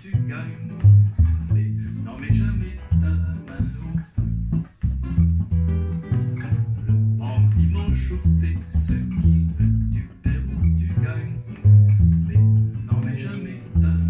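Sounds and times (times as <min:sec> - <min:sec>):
acoustic guitar: 0:00.0 - 0:14.0
plucked double bass: 0:00.0 - 0:14.0.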